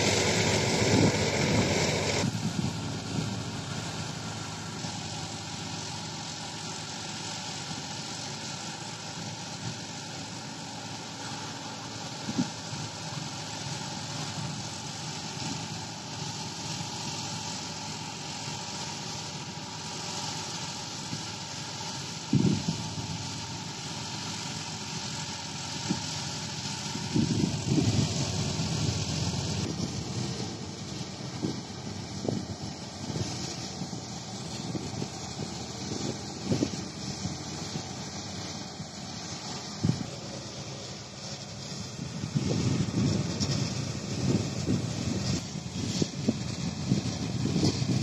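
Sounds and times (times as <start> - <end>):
wheat thresher droning: 0.0 - 48.0
wind buffeting microphone: 0.2 - 3.5, 22.3 - 23.1, 27.0 - 38.4, 41.9 - 48.0.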